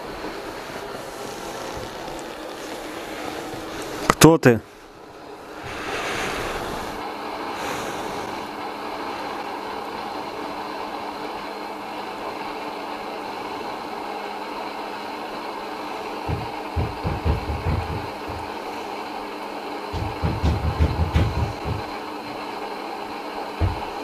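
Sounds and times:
droning hiss: 0.0s - 24.0s
faint hum: 0.0s - 24.0s
low thumps: 16.3s - 18.6s, 20.0s - 21.9s, 23.6s - 24.0s.

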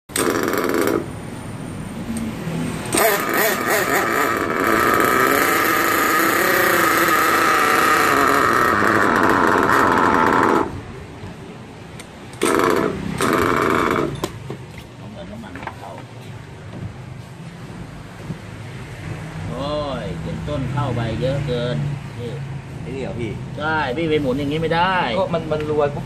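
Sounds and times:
small nitro engine buzzing: 2.9s - 10.7s.

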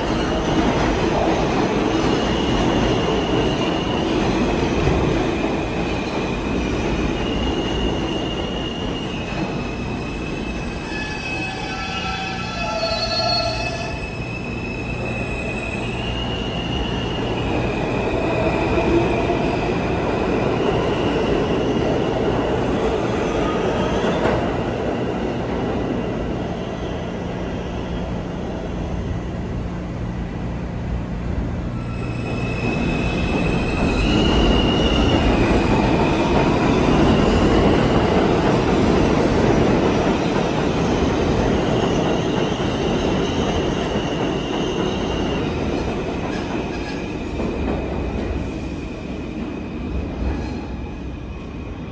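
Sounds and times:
subway train wheel and rail rumble: 0.0s - 51.9s
train high whine: 5.6s - 20.0s.

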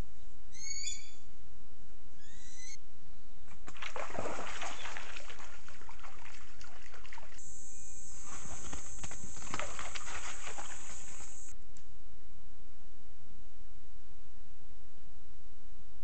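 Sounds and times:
steady high hiss: 7.4s - 11.5s
animal footsteps on gravel: 8.1s - 11.5s.

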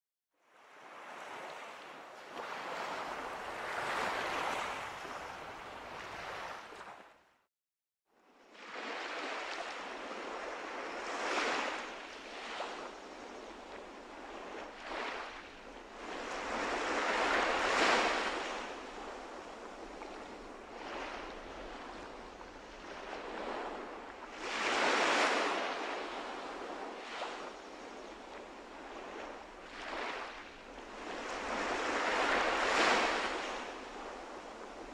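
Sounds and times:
surf breaking on sandy beach: 29.7s - 34.9s.

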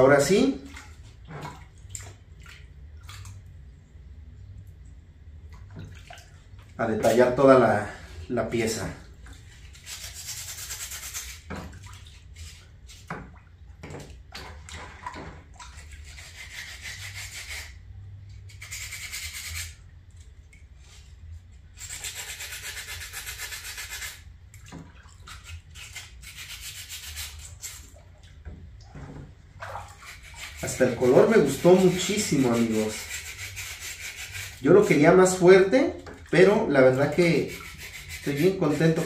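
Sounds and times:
abrasive rubbing on cement: 18.5s - 19.8s, 30.0s - 35.1s, 36.9s - 39.0s.

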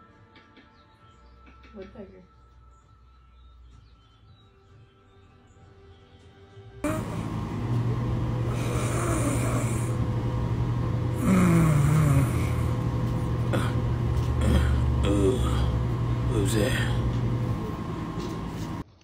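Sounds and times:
steady low hum: 6.8s - 18.9s
dog snoring: 8.5s - 10.0s, 11.1s - 15.7s.

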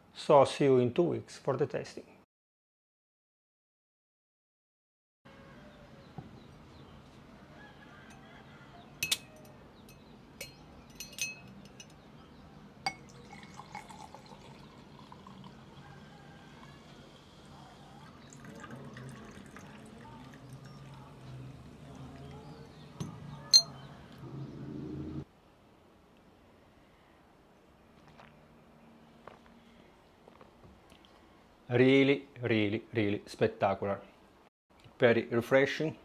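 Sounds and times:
fizzy drink poured into glass: 13.0s - 22.4s.

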